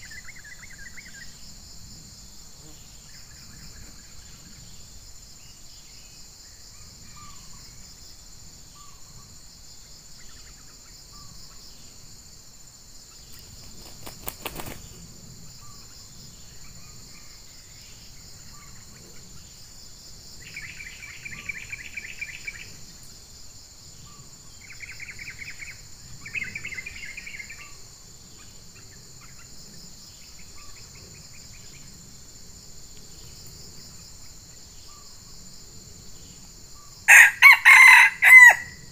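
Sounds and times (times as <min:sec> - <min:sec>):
high-pitched insect chorus: 0:00.0 - 0:38.9
pulsed insect trills: 0:00.0 - 0:38.9
flutter of rapid clicks: 0:13.3 - 0:15.0.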